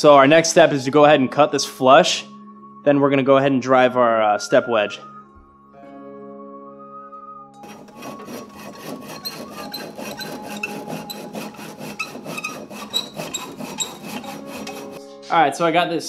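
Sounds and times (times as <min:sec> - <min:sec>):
hand saw cutting wood: 0:07.6 - 0:15.1.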